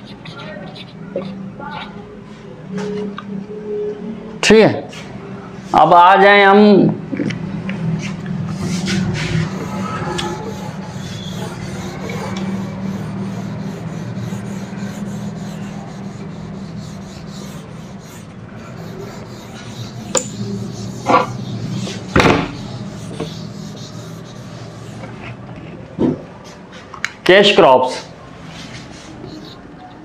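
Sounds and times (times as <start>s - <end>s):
eraser rubbing on whiteboard: 0.0s - 2.0s, 8.5s - 25.4s, 28.6s - 30.0s.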